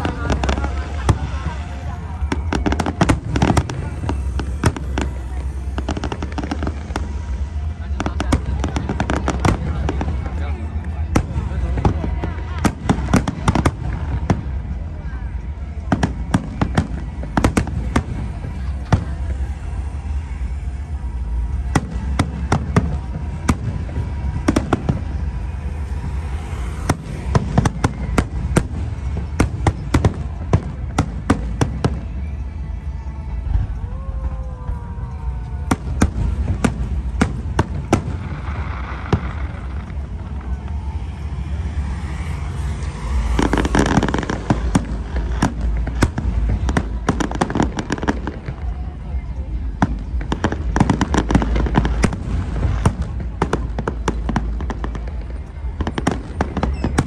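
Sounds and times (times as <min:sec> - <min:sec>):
fireworks bangs and pops: 0:00.0 - 0:33.8, 0:35.3 - 0:57.0
fireworks crackling: 0:00.0 - 0:57.0
low background rumble: 0:00.0 - 0:57.0.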